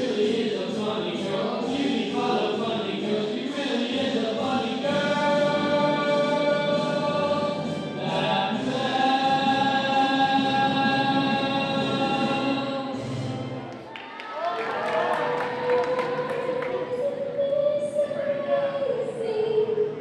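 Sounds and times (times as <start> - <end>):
choir singing: 0.0 - 13.6.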